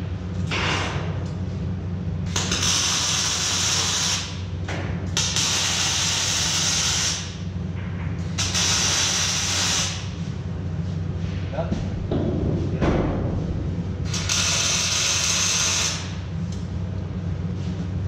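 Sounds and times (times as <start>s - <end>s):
steady low hum: 0.0s - 18.0s
hissing welding arc: 2.3s - 4.4s, 5.2s - 7.4s, 8.3s - 10.2s, 14.0s - 16.2s.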